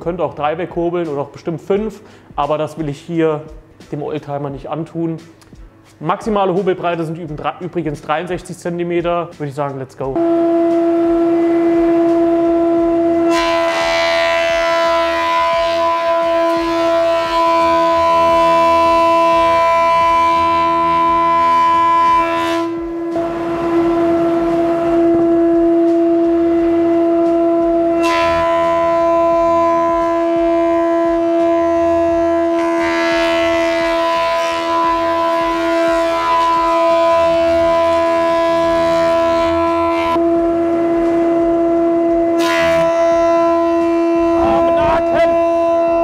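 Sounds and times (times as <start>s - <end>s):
planer whining: 10.2s - 46.0s.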